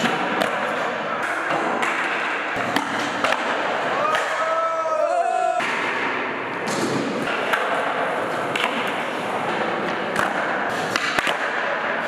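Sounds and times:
skateboards clacking on floor: 0:05.6 - 0:12.0.

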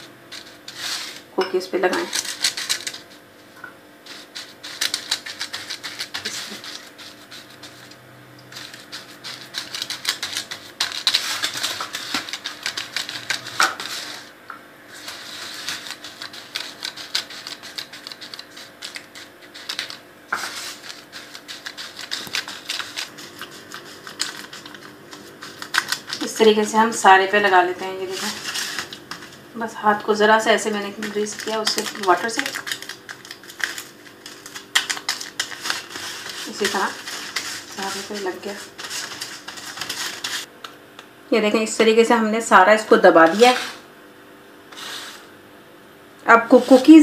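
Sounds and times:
foil crinkling: 0:00.0 - 0:03.2, 0:04.1 - 0:14.3, 0:14.9 - 0:40.5
crumbs crackling: 0:04.1 - 0:14.3, 0:14.9 - 0:26.8, 0:27.4 - 0:40.5.

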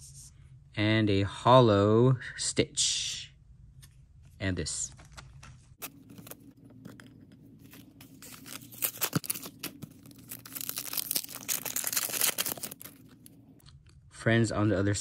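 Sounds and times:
foil wrapper crinkling and tearing: 0:05.8 - 0:13.4.

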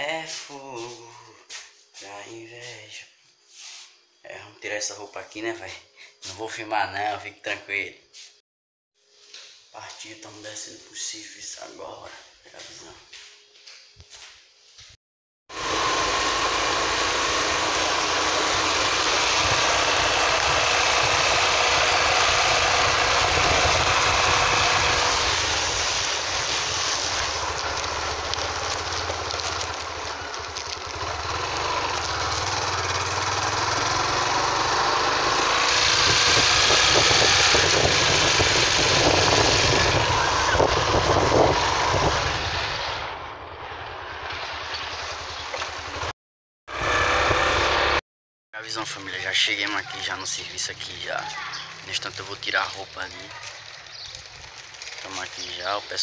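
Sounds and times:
motorcycle engine running: 0:15.5 - 0:43.8, 0:46.7 - 0:48.0
wind buffeting microphone: 0:19.4 - 0:30.0, 0:35.9 - 0:43.0.

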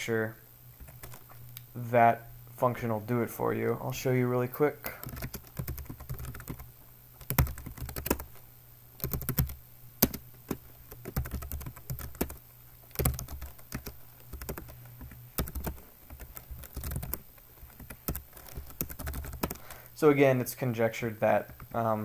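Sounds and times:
typing on computer keyboard: 0:05.0 - 0:08.4, 0:09.0 - 0:19.7.

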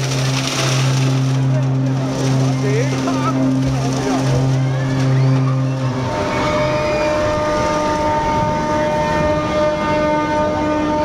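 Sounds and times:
dense noisy wash: 0:00.0 - 0:11.0
ship horns blowing long tones: 0:00.0 - 0:11.0.

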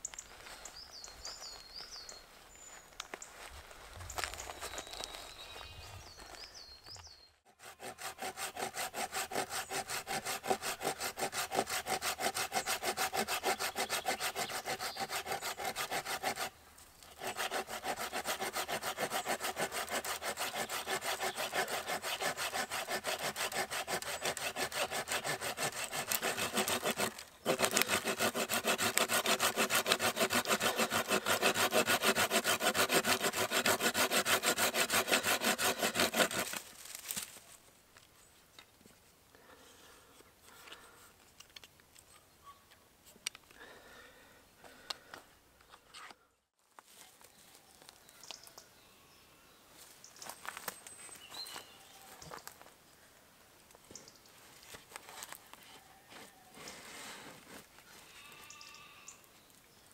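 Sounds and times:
hand saw cutting wood: 0:07.5 - 0:37.2.

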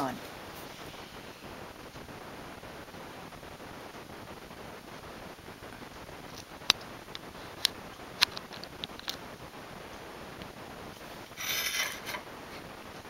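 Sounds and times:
sharp clicks and ticks: 0:06.3 - 0:09.2
ceramic plate scraping on stone: 0:11.4 - 0:12.3.

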